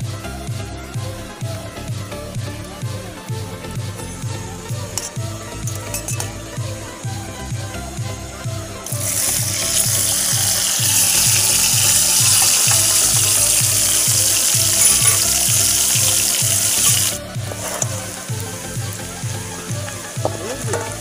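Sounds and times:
background music with steady beat: 0.0 - 21.0
potatoes sizzling in hot oil: 8.9 - 21.0.

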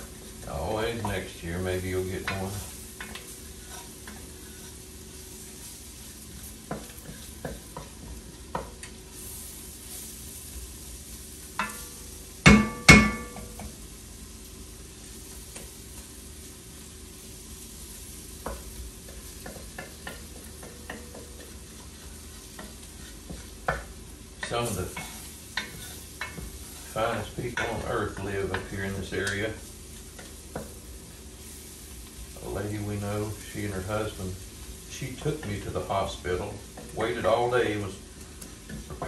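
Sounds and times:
food sizzling: 0.0 - 39.0
spoon scraping in a pot: 2.2 - 4.8, 21.4 - 23.8, 24.4 - 28.7.

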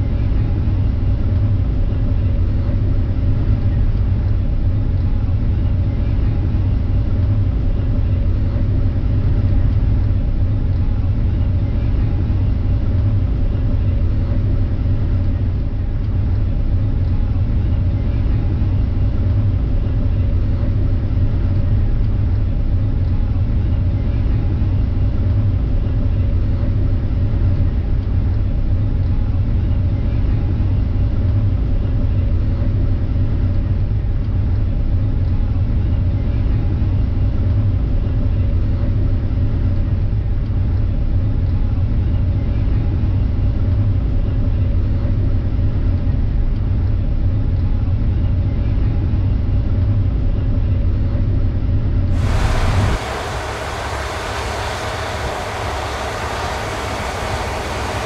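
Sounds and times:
combine harvester engine droning: 52.1 - 58.0.

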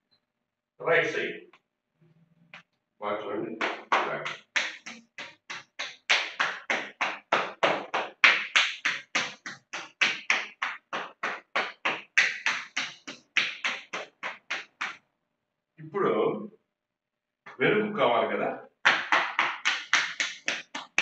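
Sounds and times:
palms slapping on legs: 3.6 - 15.0, 18.8 - 21.0.

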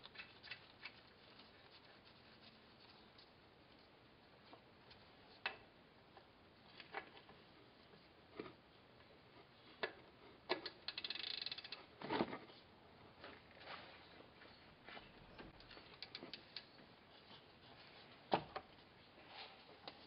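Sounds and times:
ratchet wrench clicks: 10.8 - 11.8
faint metal clicks and taps: 15.4 - 16.8.

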